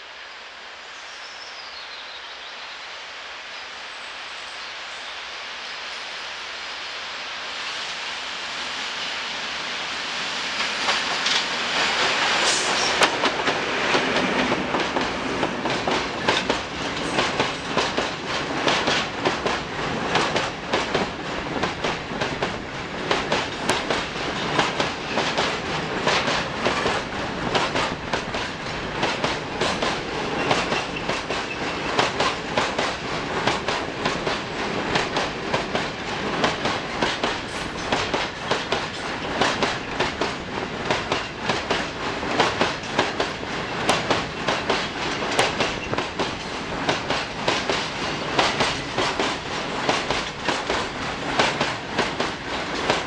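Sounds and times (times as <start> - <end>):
diesel locomotive passing: 7.7 - 53.0
train wheels clattering over rail joints: 10.6 - 53.0.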